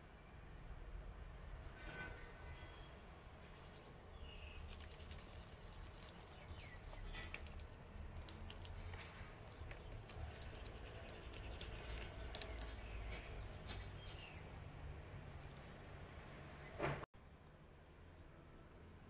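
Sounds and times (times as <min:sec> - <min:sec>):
water pattering on plant leaves: 0:04.4 - 0:14.2.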